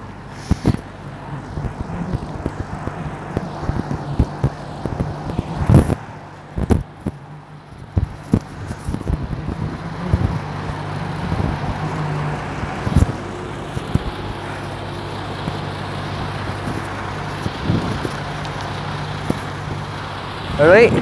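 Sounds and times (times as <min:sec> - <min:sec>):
diesel truck engine idling: 0:00.0 - 0:21.0.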